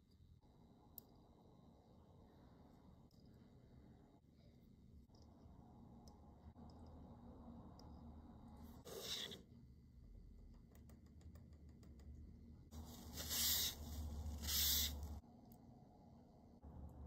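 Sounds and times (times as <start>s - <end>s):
scratchy rubbing on microphone: 12.8s - 15.2s.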